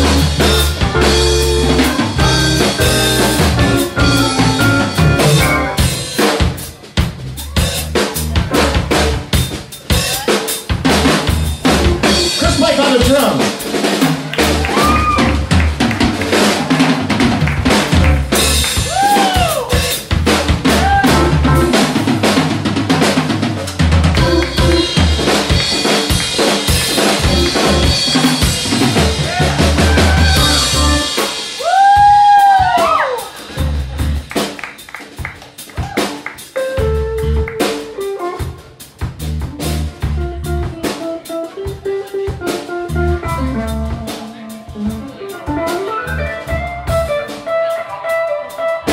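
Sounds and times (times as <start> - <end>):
electric guitar bent notes: 0.0 - 6.1, 11.7 - 13.1, 24.2 - 26.2, 26.8 - 31.3
keyboard: 0.0 - 6.1, 24.2 - 25.4, 27.2 - 31.3
electric bass: 0.0 - 9.7, 10.7 - 31.4, 33.4 - 34.4, 36.6 - 47.6
drum kit with snare: 0.0 - 48.9.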